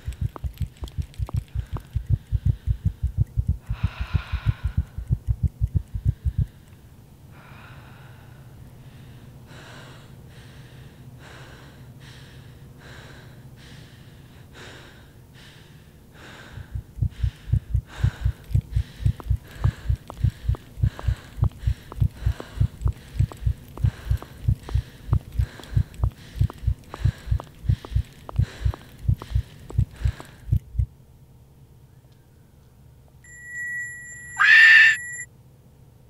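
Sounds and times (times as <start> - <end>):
quick heavy breaths: 0.0 - 5.2, 5.8 - 30.9
fast low thumping pulse: 0.0 - 6.5, 16.6 - 30.9.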